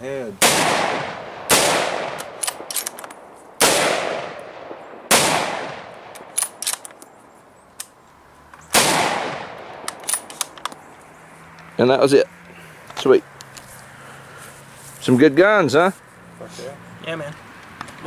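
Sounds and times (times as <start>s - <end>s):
rifle shots: 0.4s - 7.0s, 8.7s - 10.6s
sharp metallic clicks: 1.5s - 3.2s, 3.9s - 7.2s, 7.8s - 10.8s.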